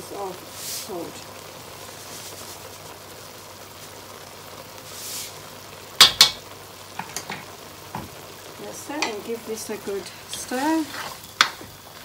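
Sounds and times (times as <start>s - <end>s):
food sizzling in a pan: 0.0s - 12.0s
spoon knocking on pan: 6.0s - 6.4s, 9.0s - 9.2s, 11.4s - 11.7s.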